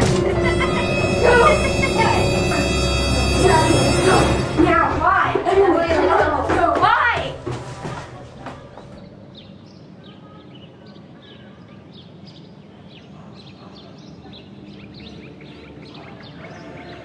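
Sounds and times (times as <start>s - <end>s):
birds chirping: 8.6s - 17.0s.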